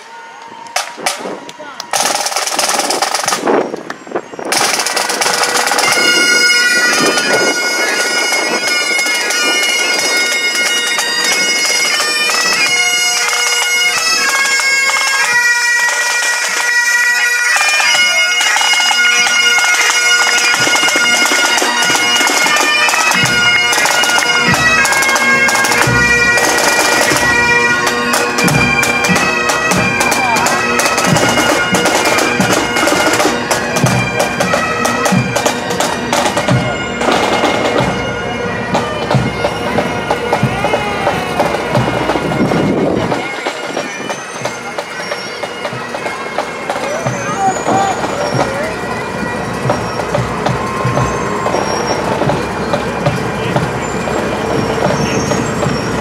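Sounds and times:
drum beats: 0.7s - 3.6s, 17.7s - 56.0s
bagpipes playing over a drone: 4.1s - 56.0s.

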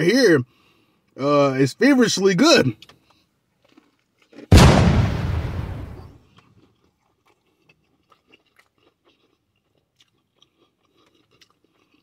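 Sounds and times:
quiet chewing: 2.8s - 4.5s, 6.3s - 12.0s
crunchy bite of fried chicken: 2.8s - 4.6s, 6.2s - 12.0s.

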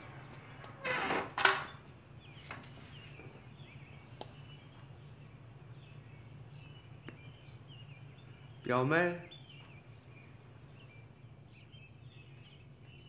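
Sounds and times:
faint bird chirps: 1.6s - 13.0s
faint footstep taps: 7.0s - 7.3s.

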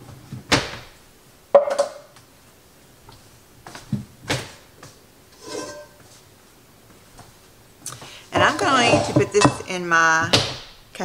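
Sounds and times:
cookware knocks: 1.5s - 2.1s, 8.4s - 9.7s.

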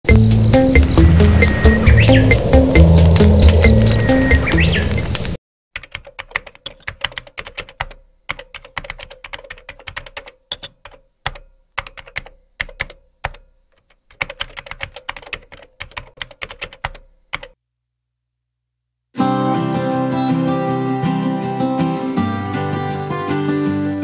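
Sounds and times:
keyboard typing: 5.0s - 17.6s.

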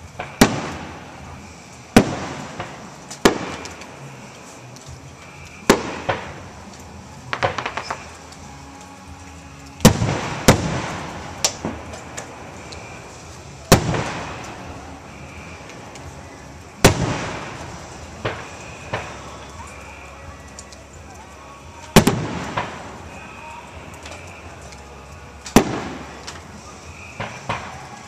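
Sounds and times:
firework booms with echo: 0.0s - 1.3s, 1.9s - 3.9s, 5.6s - 6.5s, 7.3s - 8.1s, 9.8s - 15.9s, 16.8s - 19.4s, 21.9s - 23.3s, 25.5s - 27.9s
small crackling pops: 0.0s - 28.0s.

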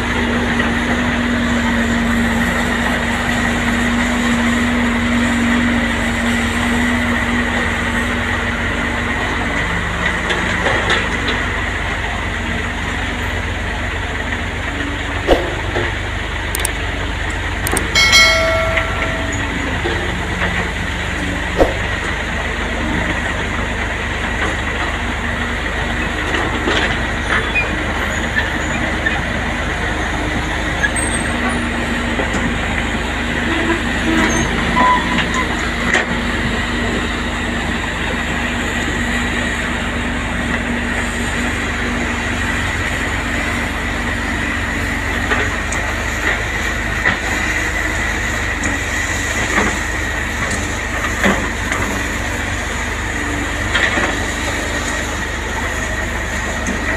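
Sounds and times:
excavator diesel engines running: 0.0s - 56.9s
high hydraulic whine: 14.9s - 22.4s.

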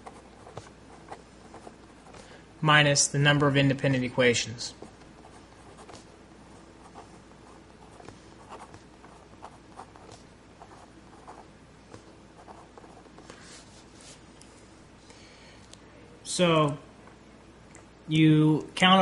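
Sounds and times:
marker scratching on paper: 4.8s - 6.1s, 6.8s - 11.5s.

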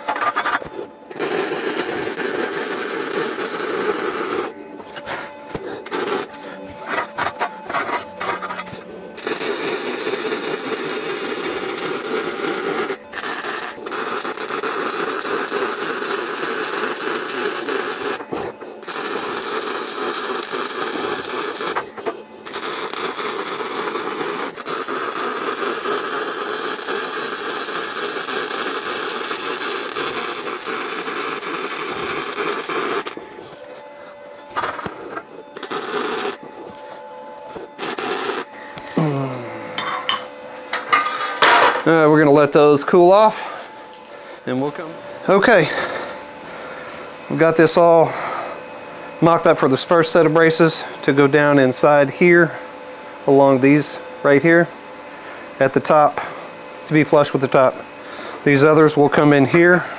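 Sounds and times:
welding arc crackling: 0.0s - 4.6s, 5.8s - 33.4s, 34.8s - 36.4s, 37.7s - 39.2s.

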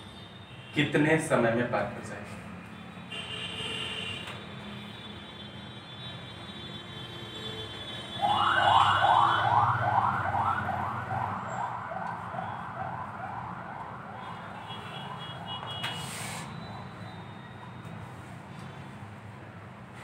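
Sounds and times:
emergency vehicle siren wailing: 8.1s - 15.6s.

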